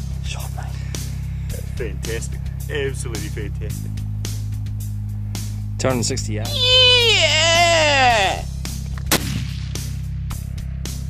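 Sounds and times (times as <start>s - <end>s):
background music with steady beat: 0.0s - 11.0s
rifle shot: 9.1s - 9.9s.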